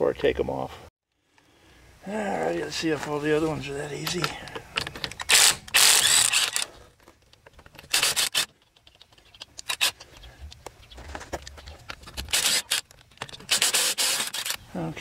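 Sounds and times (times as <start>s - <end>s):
impact wrench spinning: 5.2s - 6.6s, 7.8s - 8.5s, 12.2s - 14.6s.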